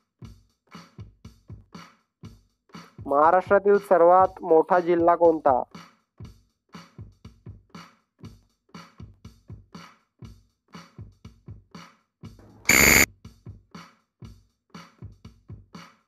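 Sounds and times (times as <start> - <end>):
electronic drum machine beat: 12.7 - 13.1
loud brief burst: 12.7 - 13.1.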